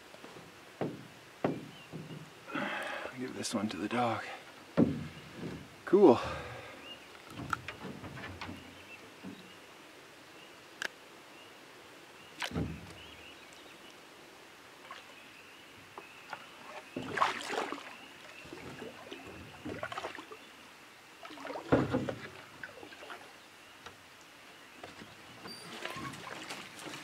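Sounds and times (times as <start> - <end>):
paddle strokes in water: 14.8 - 20.5, 24.8 - 27.0.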